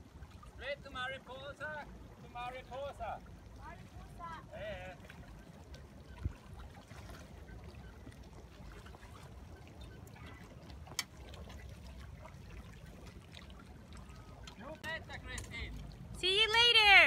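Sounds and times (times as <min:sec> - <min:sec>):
water trickling and lapping: 0:00.0 - 0:17.0.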